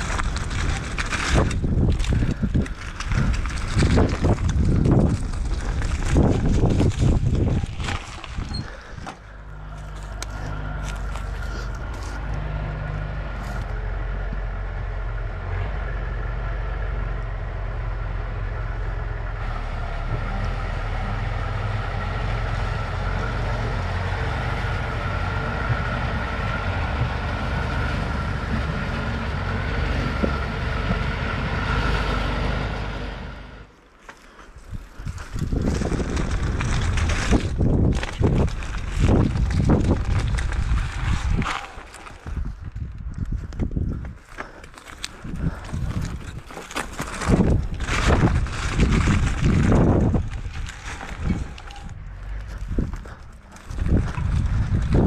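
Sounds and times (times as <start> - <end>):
heavy vehicle engine droning: 0.0 - 33.9, 35.0 - 55.0
high engine whine: 0.0 - 33.9.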